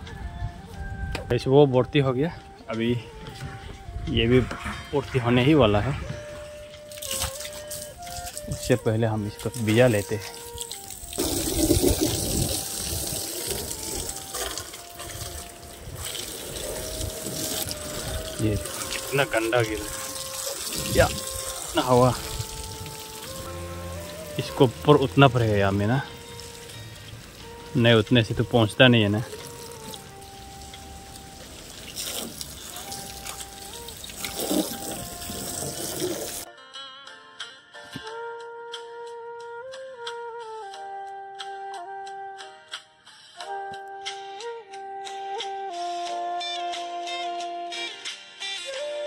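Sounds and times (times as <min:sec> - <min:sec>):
faint flute music: 0:00.0 - 0:49.0
water spraying onto car: 0:06.8 - 0:08.7, 0:09.3 - 0:36.4.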